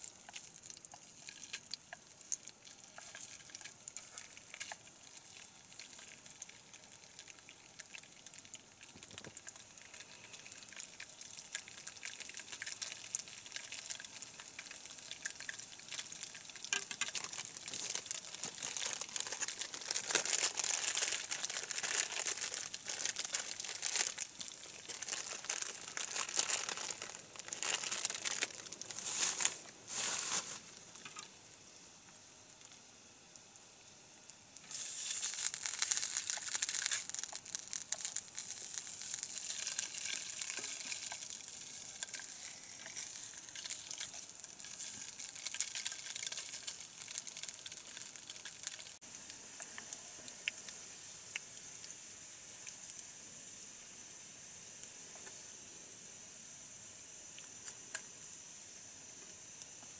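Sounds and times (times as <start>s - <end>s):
frying pan hiss: 0.0s - 59.9s
plastic wrappers crinkling: 8.8s - 31.3s, 34.7s - 49.0s.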